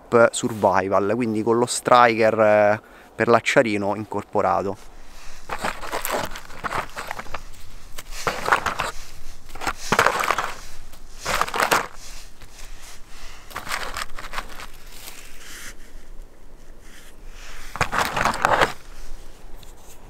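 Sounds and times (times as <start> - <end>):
cardboard and cord rustling: 4.8 - 15.4, 17.7 - 19.0.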